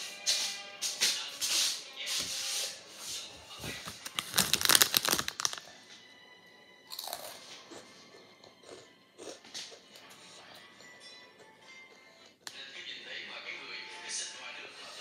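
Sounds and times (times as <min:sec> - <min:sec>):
crunching fries snack: 0:03.6 - 0:05.7, 0:06.9 - 0:07.9.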